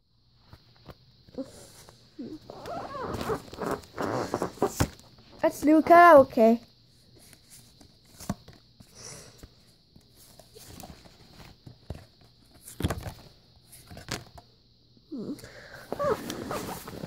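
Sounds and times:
cards tapping and rustling: 7.2 - 8.7.

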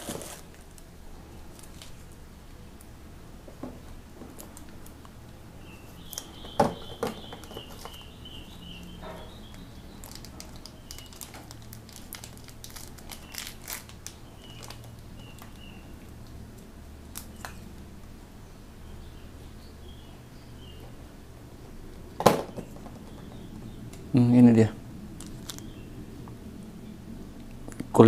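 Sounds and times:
packaging crinkling: 0.0 - 0.9, 9.9 - 15.6, 25.2 - 25.7.

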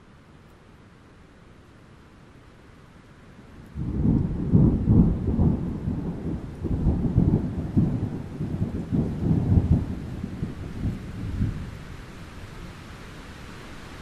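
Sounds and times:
thunder rumbling: 3.8 - 11.8.

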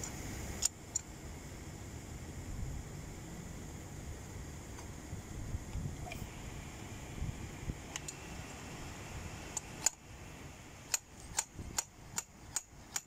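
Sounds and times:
spanner clicking on pipe fitting: 10.9 - 13.0.

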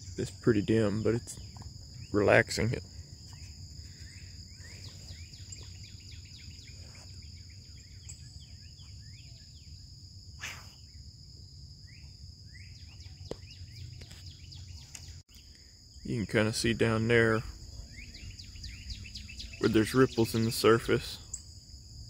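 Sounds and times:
bird chirps and calls: 17.8 - 21.4.

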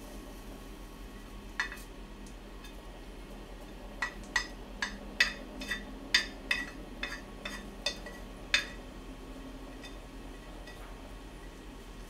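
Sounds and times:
chopsticks clicking against pot: 4.0 - 8.8.

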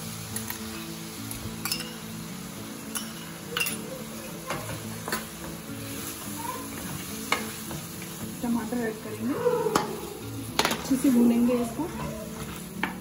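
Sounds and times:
meat sizzling in a pan: 0.0 - 13.0
utensils knocking against a pan: 4.5 - 5.6, 6.7 - 8.2, 10.6 - 11.1, 12.0 - 13.0.

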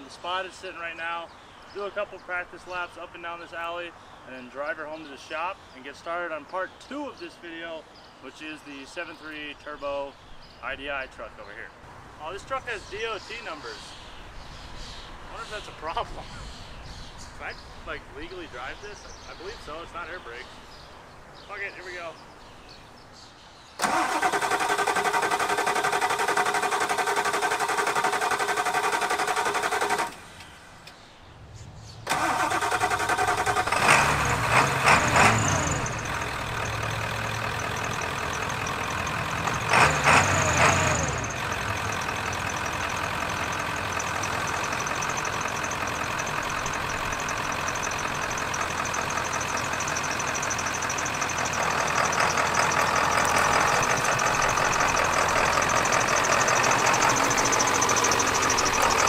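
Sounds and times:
diesel engine revving and idling: 23.8 - 30.5, 32.0 - 59.0
engine cranking: 23.8 - 30.5, 32.1 - 59.0.

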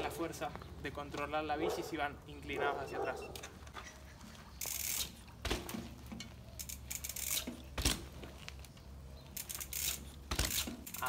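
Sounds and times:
bike tyres crackling over leaves: 3.6 - 11.0
bike wheel thump: 4.7 - 8.4, 9.5 - 11.0.

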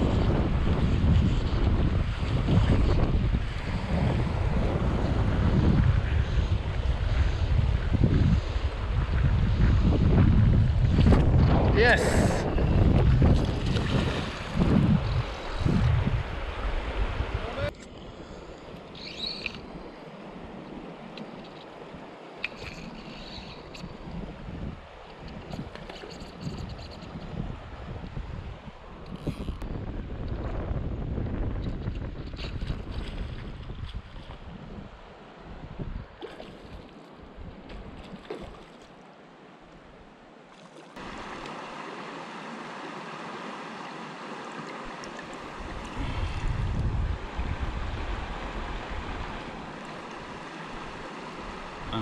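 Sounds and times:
river water over stones: 10.9 - 29.6, 31.8 - 52.0
river running over stones: 36.7 - 52.0.

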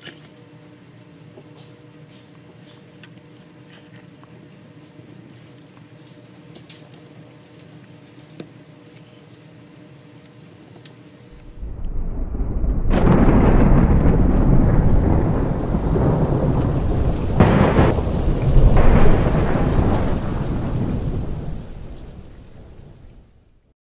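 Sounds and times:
rolling thunder: 11.4 - 23.4
sharp thunder cracks: 11.4 - 23.4
rain: 11.4 - 23.7.

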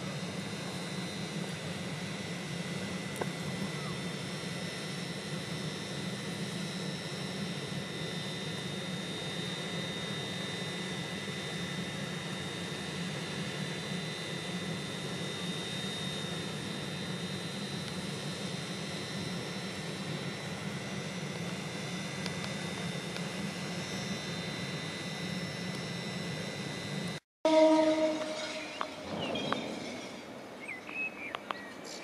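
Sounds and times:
high thin train whine: 0.0 - 32.0
train low drone: 0.0 - 32.0.

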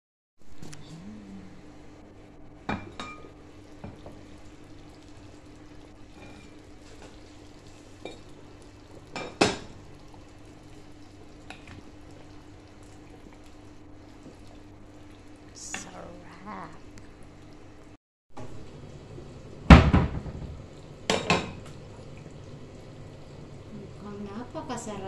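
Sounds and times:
low hum: 0.4 - 2.7.

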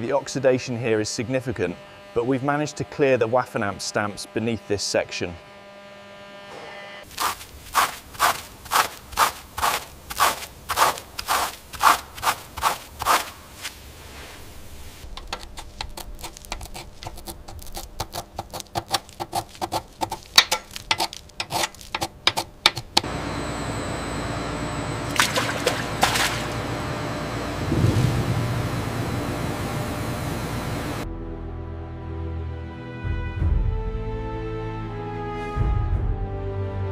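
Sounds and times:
bristle brush scrubbing metal: 7.1 - 23.0
metal pick scraping rust: 15.1 - 23.0.

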